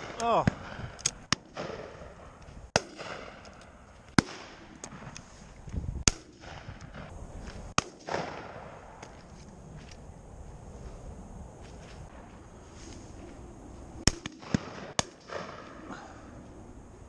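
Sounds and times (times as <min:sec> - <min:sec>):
loud shotgun shots with echo: 0:00.0 - 0:03.4, 0:04.2 - 0:05.0, 0:06.0 - 0:07.1, 0:07.8 - 0:08.7
distant gunshots: 0:00.0 - 0:05.1, 0:06.0 - 0:07.1, 0:07.8 - 0:08.7, 0:14.0 - 0:15.8.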